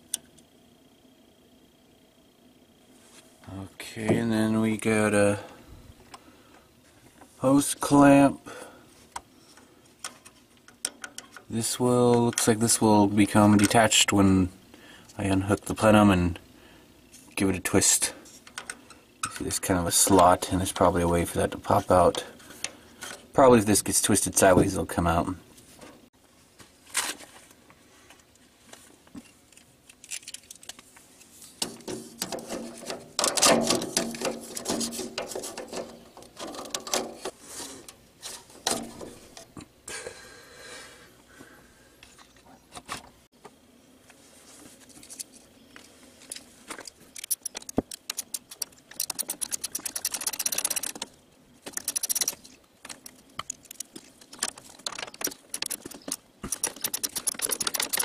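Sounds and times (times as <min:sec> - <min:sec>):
metal and plastic parts clinking: 0:29.2 - 0:30.9, 0:31.6 - 0:37.4, 0:46.2 - 0:58.0
socket ratchet clicking: 0:47.1 - 0:51.1, 0:51.7 - 0:58.0.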